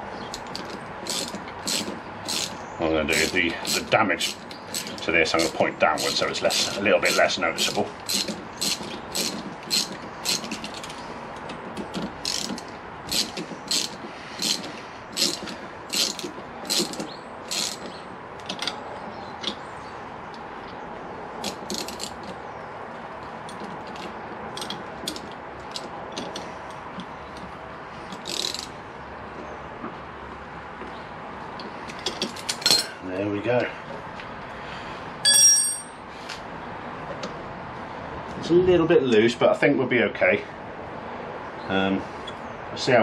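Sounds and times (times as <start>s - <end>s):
ratchet wrench clicking: 0.3s - 11.0s, 12.2s - 17.9s, 21.4s - 22.3s, 28.1s - 28.7s.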